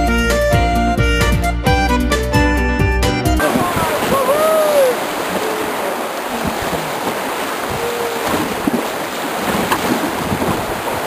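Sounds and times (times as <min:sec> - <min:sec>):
river water rushing and splashing: 0:03.4 - 0:11.0
wind buffeting microphone: 0:03.4 - 0:11.0.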